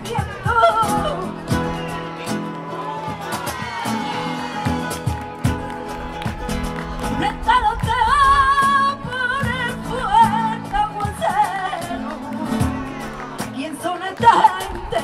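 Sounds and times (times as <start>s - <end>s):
woman singing: 0.0s - 2.1s, 7.1s - 15.0s
acoustic guitar: 0.0s - 15.0s
cajon drum: 0.0s - 15.0s.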